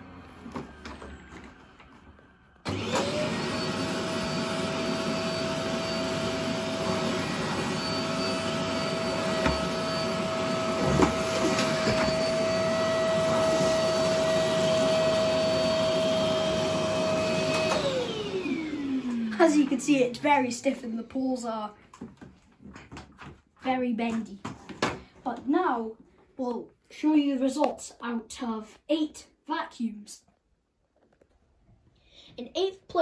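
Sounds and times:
vacuum cleaners whining: 0:00.0 - 0:20.6.

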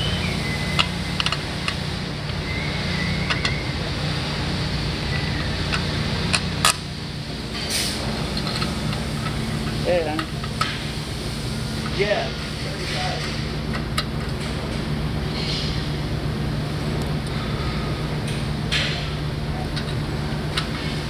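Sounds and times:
low shop hum: 0:00.0 - 0:21.0
bolts clicking on steel bracket: 0:00.7 - 0:02.4.

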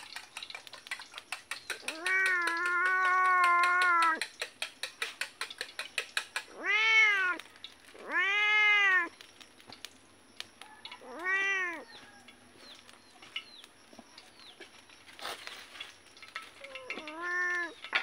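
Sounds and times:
cat meowing: 0:01.8 - 0:04.2, 0:06.5 - 0:07.4, 0:08.0 - 0:09.1, 0:11.0 - 0:11.9, 0:16.6 - 0:17.8.

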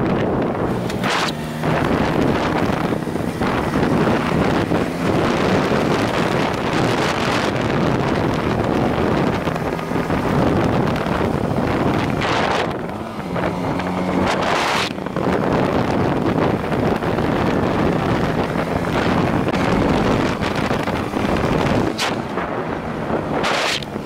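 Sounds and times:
motorcycle engine running: 0:00.0 - 0:24.0
wind rushing over microphone: 0:00.0 - 0:24.0.

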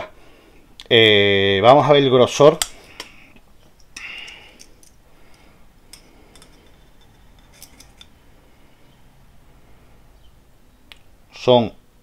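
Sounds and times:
light metal clicks and taps: 0:03.7 - 0:08.2
caliper jaw metallic scrape: 0:05.9 - 0:08.2.

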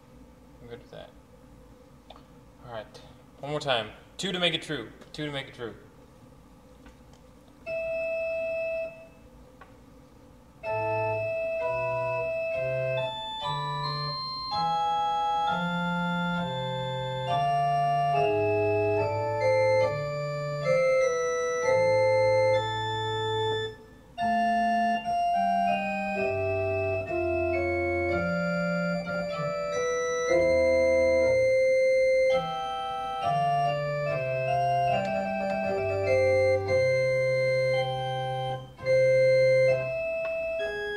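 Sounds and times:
organ playing slow piece: 0:07.6 - 0:09.6, 0:10.2 - 0:40.9.

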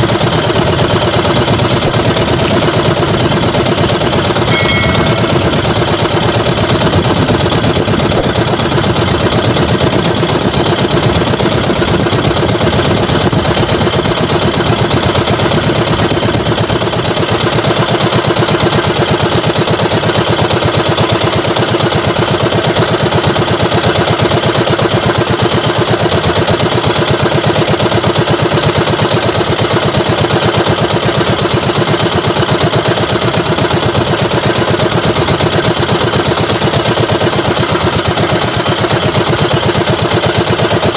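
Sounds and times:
boat engine droning: 0:00.4 - 0:13.4.

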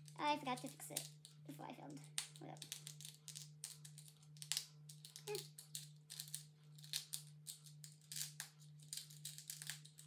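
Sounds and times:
beads clicking and rattling: 0:02.0 - 0:10.0.

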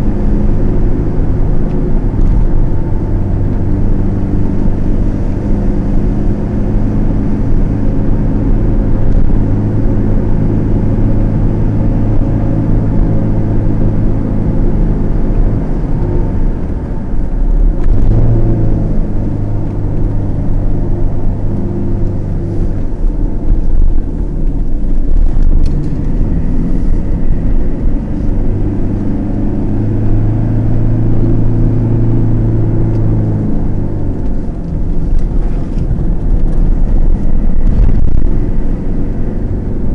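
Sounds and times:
car engine hum: 0:00.0 - 0:39.9
tyre and road noise: 0:00.0 - 0:39.9.

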